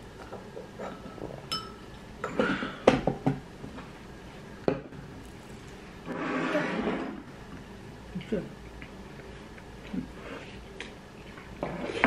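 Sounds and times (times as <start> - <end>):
chopsticks clinking on ceramic bowls: 0.8 - 2.4.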